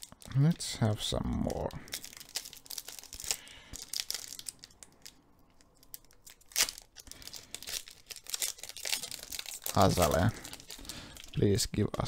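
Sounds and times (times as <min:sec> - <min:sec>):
foil wrapper crinkling and tearing: 0:01.4 - 0:11.6.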